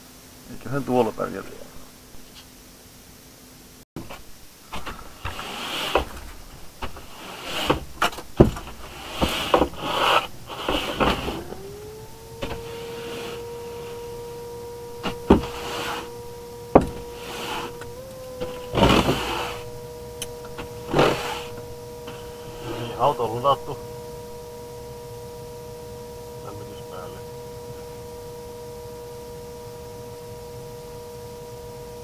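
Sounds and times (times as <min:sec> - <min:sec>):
knocks and clunks: 0:04.0 - 0:14.3, 0:14.9 - 0:22.9
electric motor whine: 0:04.1 - 0:32.0.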